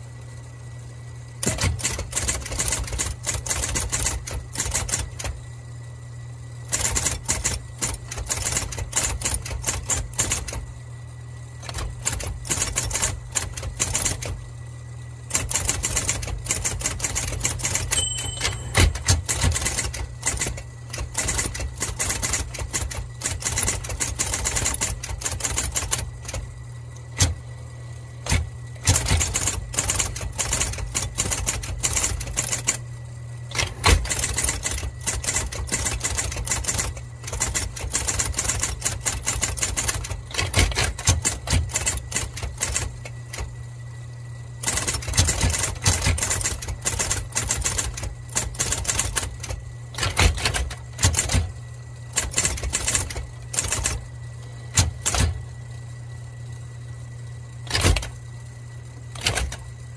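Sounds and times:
electric typewriter key strikes: 0:01.4 - 0:05.4, 0:06.7 - 0:10.6, 0:11.6 - 0:14.4, 0:15.3 - 0:26.5, 0:27.1 - 0:27.4, 0:28.2 - 0:32.8, 0:33.5 - 0:43.5, 0:44.6 - 0:51.6, 0:52.2 - 0:54.0, 0:54.7 - 0:55.4, 0:57.7 - 0:58.2, 0:59.2 - 0:59.7
typewriter carriage return: 0:01.4 - 0:05.4, 0:06.7 - 0:10.6, 0:11.6 - 0:14.4, 0:15.3 - 0:26.4, 0:27.1 - 0:27.4, 0:28.2 - 0:32.8, 0:33.5 - 0:43.5, 0:44.6 - 0:51.6, 0:52.2 - 0:54.0, 0:54.7 - 0:55.4, 0:57.6 - 0:58.2, 0:59.2 - 0:59.7
typewriter motor humming: 0:01.4 - 0:05.5, 0:06.6 - 0:10.8, 0:11.4 - 0:14.6, 0:15.3 - 0:43.9, 0:44.6 - 0:55.8, 0:57.5 - 0:59.9.

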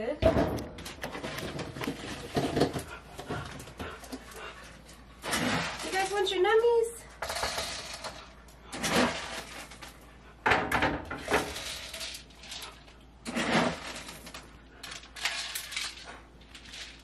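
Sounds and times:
dry dog food rattling into bowls: 0:05.2 - 0:10.0, 0:11.2 - 0:17.0.

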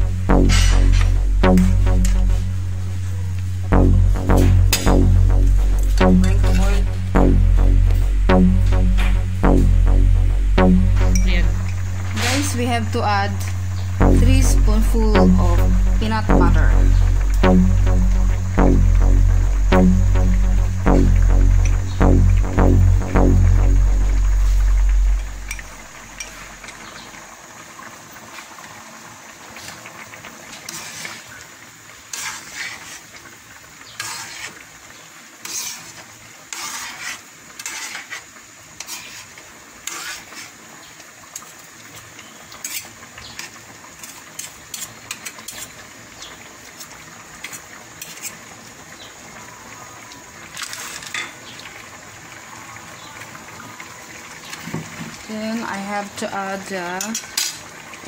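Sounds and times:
metal spoon scraping a wok: 0:36.5 - 0:38.2.

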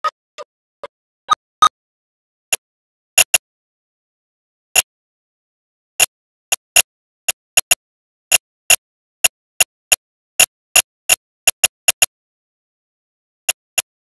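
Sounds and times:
sharp short clicks: 0:02.5 - 0:03.4, 0:06.0 - 0:08.8, 0:11.1 - 0:12.1.

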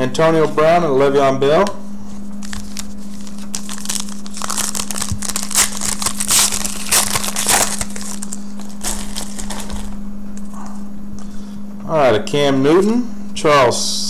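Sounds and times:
foil wrapper crinkling and tearing: 0:02.4 - 0:10.0.

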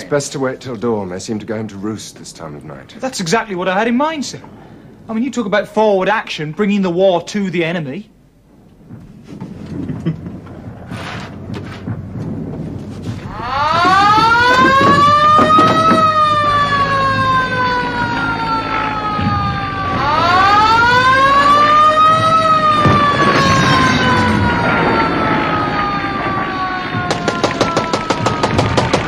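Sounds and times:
wailing siren-like tone: 0:13.1 - 0:29.0
fast sharp clacks: 0:27.0 - 0:29.0.

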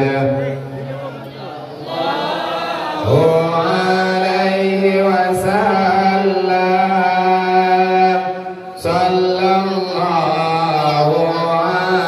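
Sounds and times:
man chanting devotional melody: 0:00.0 - 0:01.2, 0:03.0 - 0:12.0.

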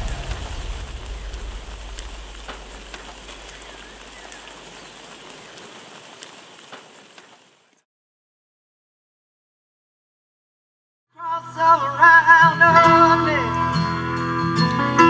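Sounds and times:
orchestral music: 0:00.0 - 0:03.6
drip-like ticks: 0:00.0 - 0:07.4
light rain hissing: 0:00.0 - 0:07.8.

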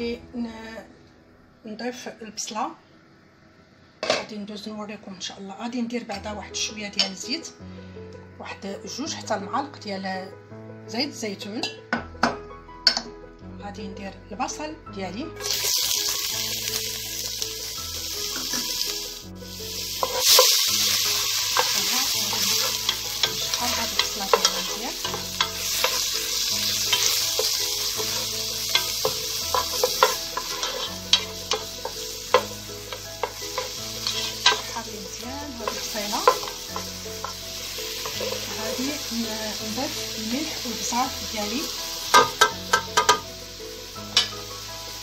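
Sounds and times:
onion sizzling in oil: 0:15.4 - 0:45.0
wooden spoon scraping pot: 0:26.9 - 0:32.5, 0:33.2 - 0:34.8.

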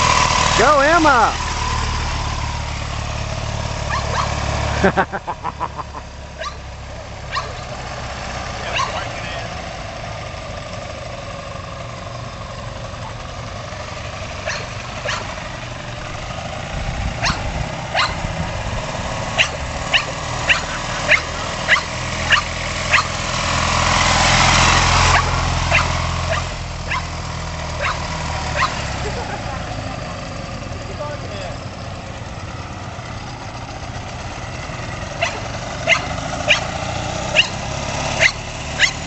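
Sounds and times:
motorcycle engine running: 0:00.0 - 0:07.8, 0:08.6 - 0:39.0
dog barking: 0:03.9 - 0:04.4, 0:06.4 - 0:06.6, 0:07.3 - 0:07.7, 0:08.7 - 0:09.2, 0:14.4 - 0:15.3, 0:17.2 - 0:18.2, 0:19.4 - 0:23.1, 0:25.1 - 0:27.1, 0:27.8 - 0:28.0, 0:28.6 - 0:28.8, 0:35.2 - 0:36.7, 0:37.3 - 0:37.6, 0:38.2 - 0:39.0.

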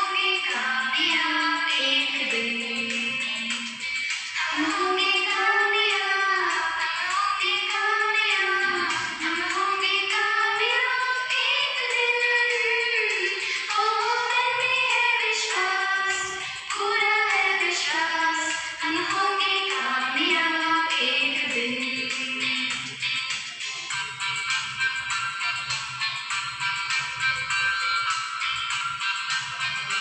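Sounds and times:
woman singing: 0:00.0 - 0:23.0.

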